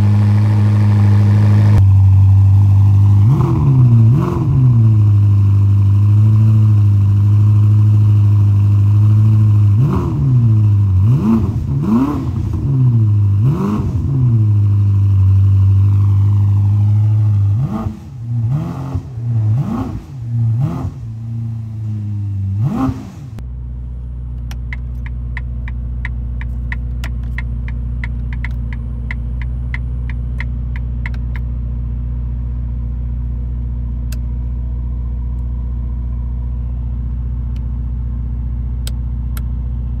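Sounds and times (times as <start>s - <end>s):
car engine idling and revving: 0.0s - 40.0s
regular sharp ticks: 24.4s - 31.4s.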